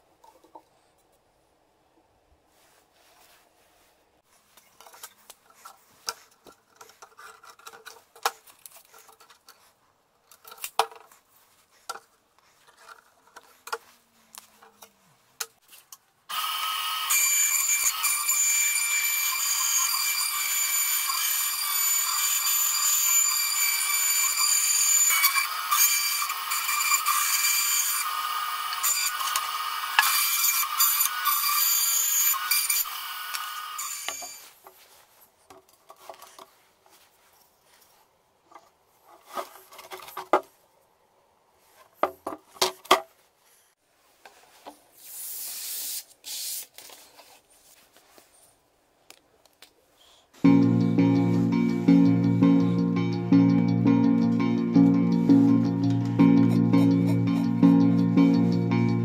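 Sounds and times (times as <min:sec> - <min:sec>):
band saw cutting wood: 0:16.3 - 0:34.4.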